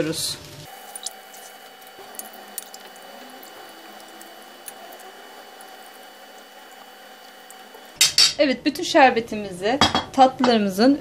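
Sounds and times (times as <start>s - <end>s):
syrup trickling and splashing: 0.7s - 8.0s.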